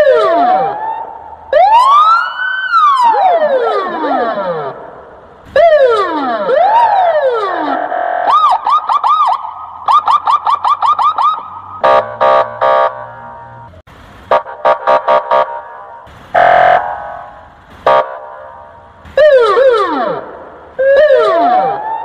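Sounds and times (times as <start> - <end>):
electronic police siren: 0.0 - 4.9, 5.5 - 13.0, 19.2 - 22.0.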